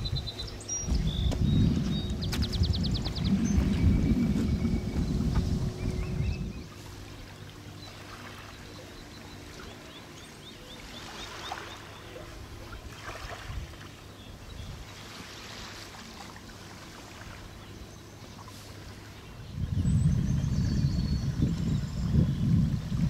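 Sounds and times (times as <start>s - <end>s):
distant boat engine hum: 0.0s - 23.0s
water lapping: 0.0s - 23.0s.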